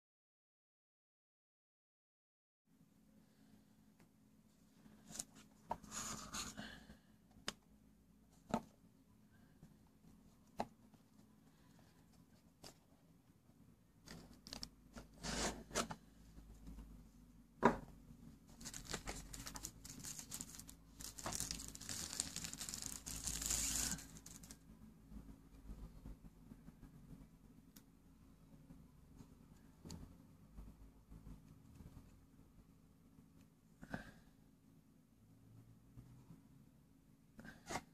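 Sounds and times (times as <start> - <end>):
plastic wrapping crinkling: 14.1 - 14.7, 18.5 - 24.6.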